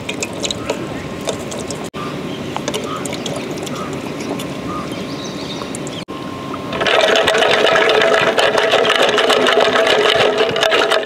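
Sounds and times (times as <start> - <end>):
small wet clicks and crackles: 0.0 - 1.9, 6.7 - 11.0
outdoor background hiss: 0.0 - 6.8.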